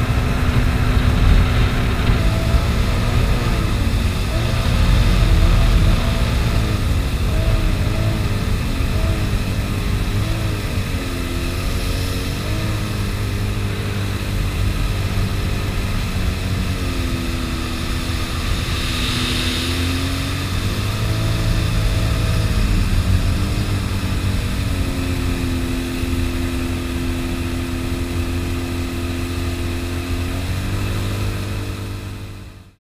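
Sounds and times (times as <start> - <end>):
jet ski engine running: 0.0 - 32.8
water rushing: 12.1 - 30.3.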